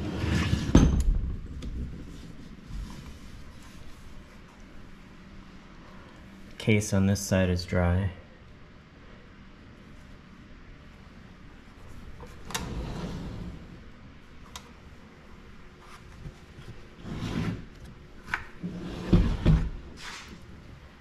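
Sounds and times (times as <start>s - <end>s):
engine scraping on workbench: 0.0s - 0.8s, 12.5s - 13.8s, 17.0s - 17.7s, 18.6s - 20.3s.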